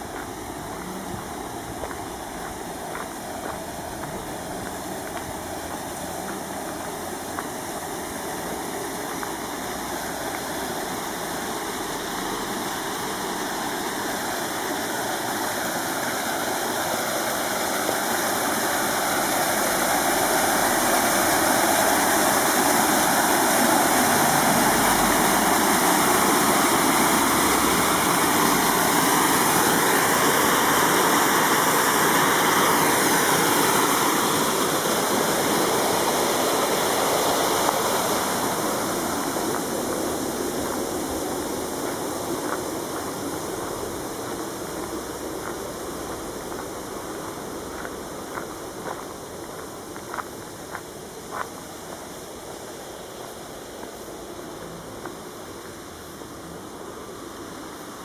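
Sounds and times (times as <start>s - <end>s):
water cascading over concrete ledge: 0.0s - 58.0s.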